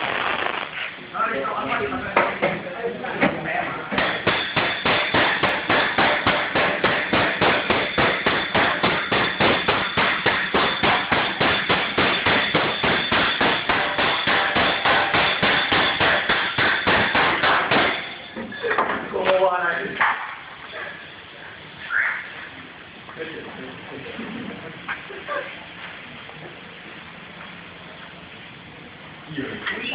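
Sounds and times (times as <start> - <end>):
hammer blows on sheet steel: 4.0 - 18.2
high metallic ring: 7.6 - 18.8.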